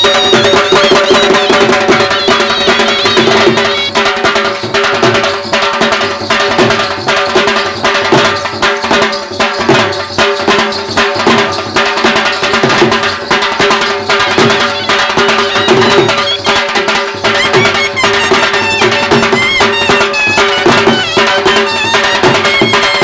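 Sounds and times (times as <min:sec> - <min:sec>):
held melody line: 0:00.0 - 0:05.8, 0:12.2 - 0:23.0
fast steady drumbeat: 0:00.0 - 0:23.0.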